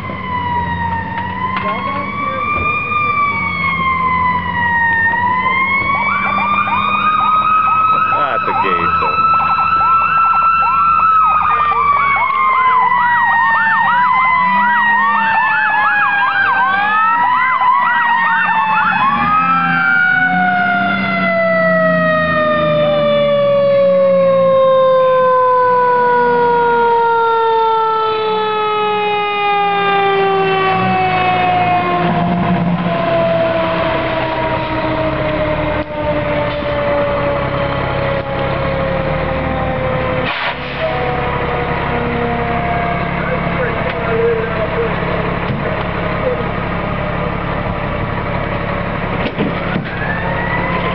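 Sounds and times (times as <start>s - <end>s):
electronic siren warbling: 0.0s - 45.2s, 49.8s - 50.9s
mechanical siren wailing: 0.0s - 48.0s, 49.7s - 50.9s
truck engine running: 28.8s - 50.9s.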